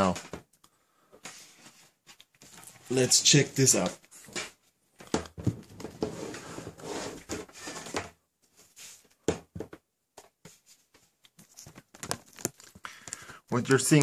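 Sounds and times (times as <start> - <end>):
handling rubbing and scraping: 1.2 - 4.6, 5.4 - 9.2.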